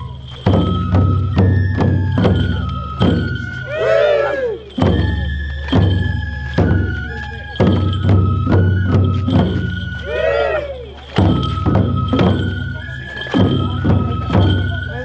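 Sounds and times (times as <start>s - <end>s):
bamboo flute melody: 0.0s - 15.0s
large drum beats: 0.0s - 15.0s.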